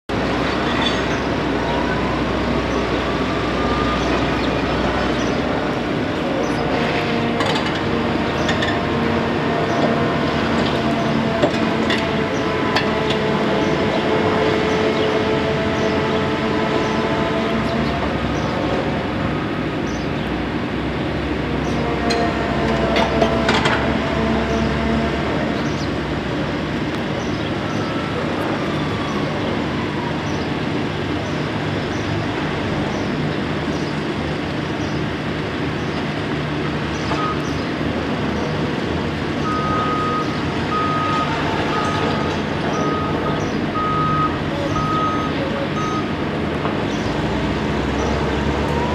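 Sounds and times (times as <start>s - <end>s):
heavy machinery running: 0.1s - 48.9s
reversing alarm beeping: 3.4s - 4.6s, 37.1s - 37.4s, 39.4s - 46.2s.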